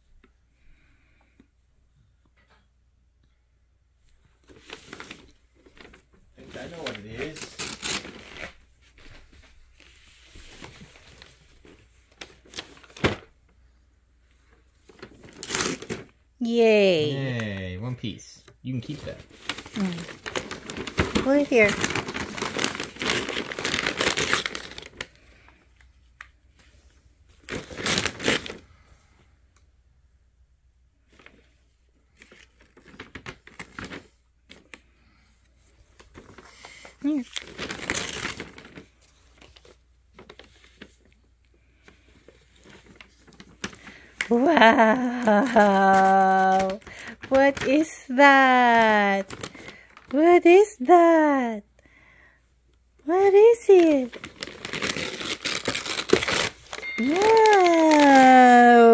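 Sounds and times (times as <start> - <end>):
toy packaging rustling: 14.7 - 16.2, 18.7 - 25.4, 27.4 - 28.6, 35.9 - 41.1, 41.8 - 50.3, 53.2 - 58.9
packaging rustling and clicking: 19.1 - 25.1, 54.1 - 58.4.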